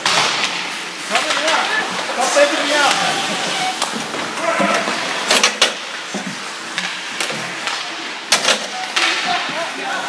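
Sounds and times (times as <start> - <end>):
skates hissing on ice: 0.0 - 8.2
sticks and puck knocking: 8.8 - 9.7.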